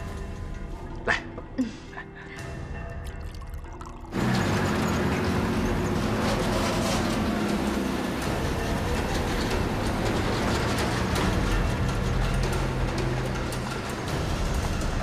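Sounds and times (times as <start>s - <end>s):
quiet music: 0.0s - 15.0s
truck engine running: 4.1s - 15.0s.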